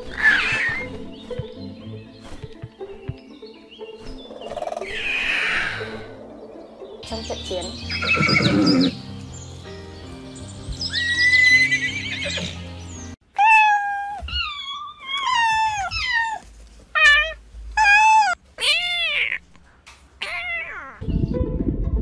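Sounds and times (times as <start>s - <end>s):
background music: 0.0s - 13.2s, 21.0s - 22.0s
horse neighing: 8.0s - 9.0s.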